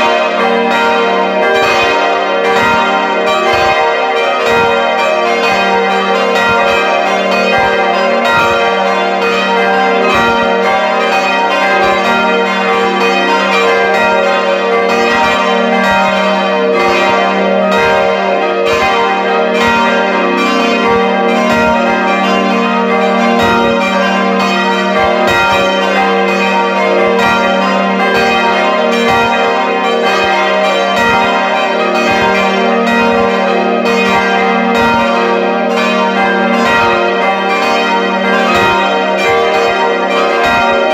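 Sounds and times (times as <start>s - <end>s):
church bells ringing: 0.0s - 40.9s.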